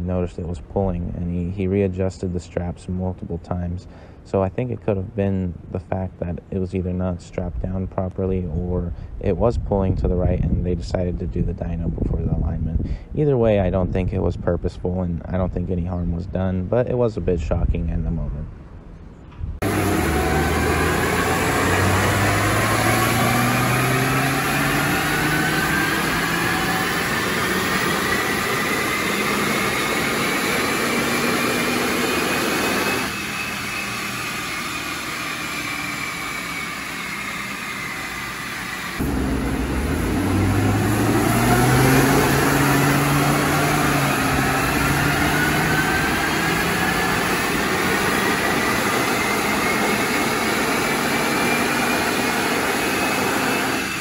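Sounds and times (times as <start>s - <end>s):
car engine under load: 18.5s - 54.0s
rising whine: 19.0s - 54.0s.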